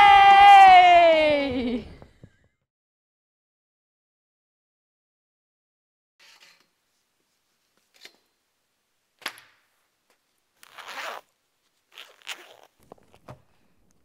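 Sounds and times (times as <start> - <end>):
bag zip pulled open: 10.6 - 11.3, 11.9 - 13.2.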